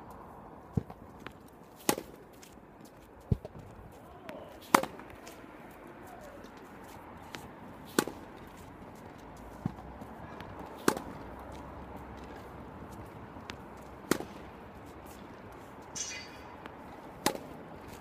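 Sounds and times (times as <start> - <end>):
tennis racket hitting ball: 1.8 - 2.2, 4.6 - 5.4, 7.8 - 8.2, 10.6 - 11.2, 13.0 - 14.4, 16.0 - 18.0
tennis ball bouncing on court: 4.3 - 5.4, 7.3 - 8.2, 9.5 - 11.3, 13.0 - 14.4, 16.0 - 18.0.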